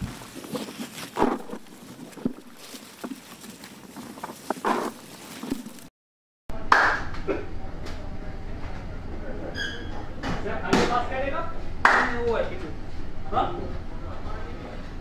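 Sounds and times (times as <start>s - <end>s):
leaves rustling: 0.0s - 5.9s.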